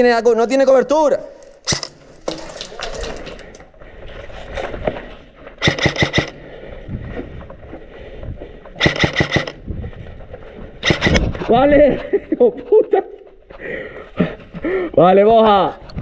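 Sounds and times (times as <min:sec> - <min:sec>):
electric rifle firing bursts: 0:05.6 - 0:06.4, 0:08.8 - 0:09.6, 0:10.8 - 0:11.2.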